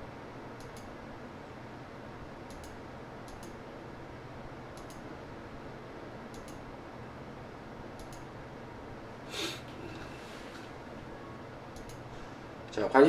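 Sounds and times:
low room hiss: 0.0 - 13.0
computer mouse clicking: 0.6 - 0.9, 2.4 - 3.6, 4.8 - 5.0, 6.3 - 6.6, 8.0 - 8.3, 11.7 - 12.1.

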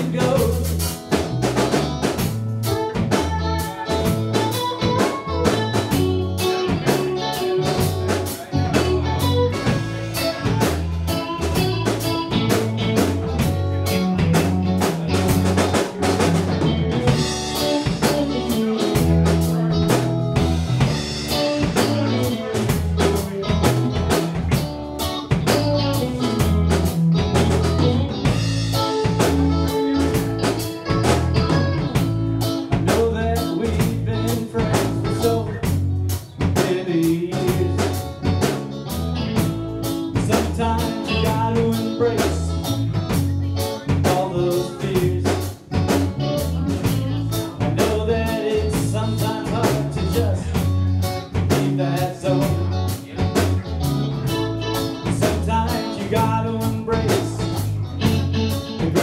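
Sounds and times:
person singing: 0.0 - 0.9, 16.7 - 23.8, 32.7 - 35.8, 36.4 - 38.2, 40.2 - 45.6, 46.3 - 59.0
drum kit steady beat: 0.0 - 59.0
live rock band playing: 0.0 - 59.0.

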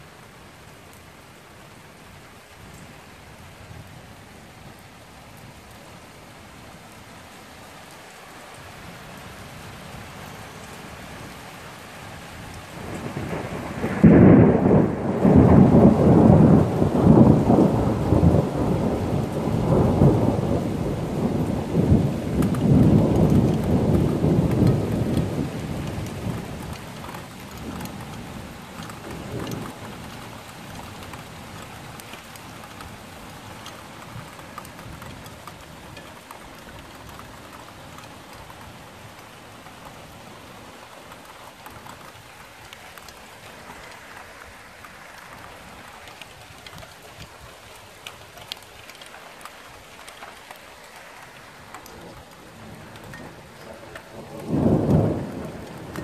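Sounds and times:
rain falling: 0.0 - 56.0
thunder rolling: 12.8 - 26.4, 51.9 - 56.0.

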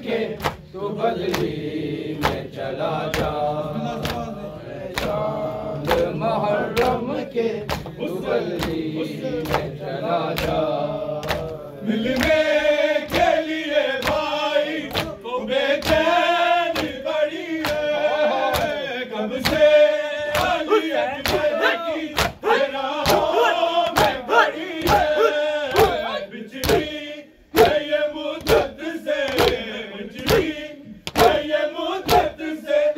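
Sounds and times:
men chanting in unison: 0.0 - 32.9
chest beating slaps: 2.2 - 3.4, 7.6 - 10.6, 11.2 - 12.4, 14.0 - 15.2, 16.8 - 17.0, 17.6 - 18.8, 20.3 - 27.0, 27.6 - 32.4.

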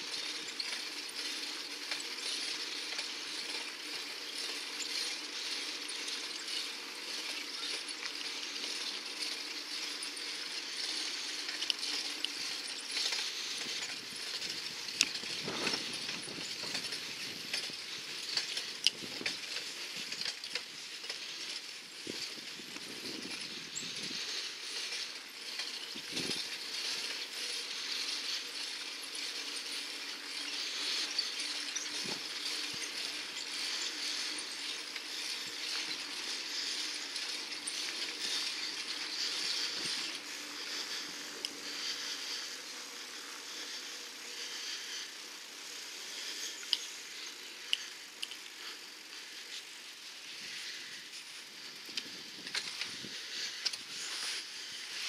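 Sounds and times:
bicycle riding over brick paving: 0.0 - 55.0.

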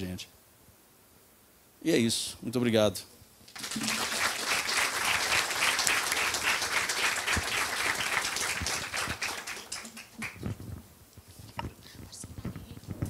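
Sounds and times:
audience applauding: 3.5 - 10.4.

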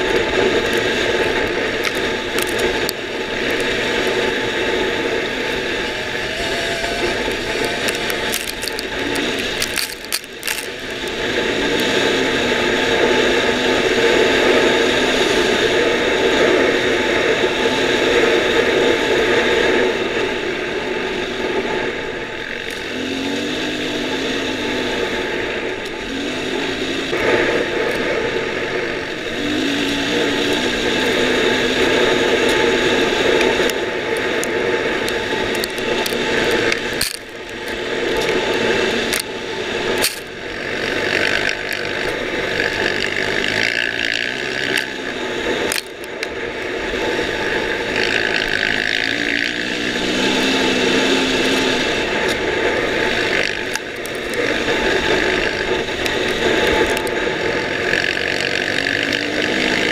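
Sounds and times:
dirt bike engine running hard: 0.0 - 59.9
mechanical rattle: 7.9 - 11.1.

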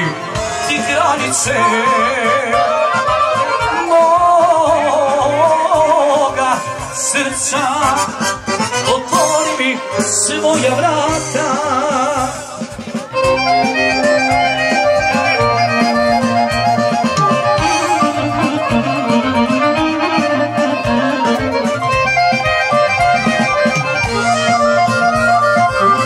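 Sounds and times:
steady bass beat: 0.0 - 26.0
accordion playing quick runs: 13.0 - 26.0.

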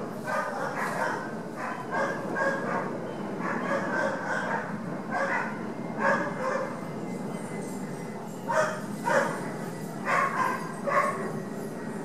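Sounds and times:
steady background noise: 0.0 - 12.0
dog barking: 0.3 - 6.8, 8.5 - 9.4, 10.1 - 11.2.

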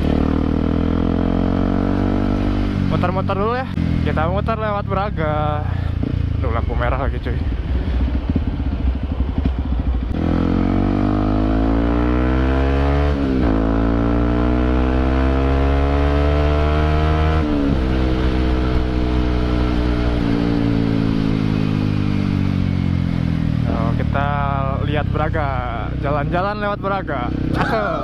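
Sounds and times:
motorcycle engine revving: 0.0 - 28.0.

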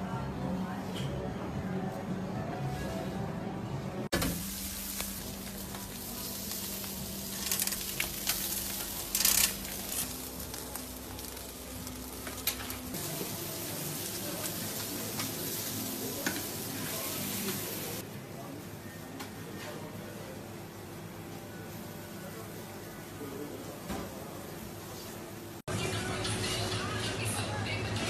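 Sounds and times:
fish sizzling on a grill: 4.2 - 18.0.

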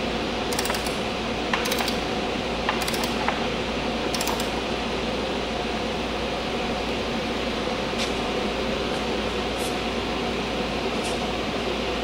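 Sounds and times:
fan running: 0.0 - 12.0
torque wrench clicking: 0.5 - 1.0, 1.6 - 2.0, 2.7 - 3.4, 4.1 - 4.5.

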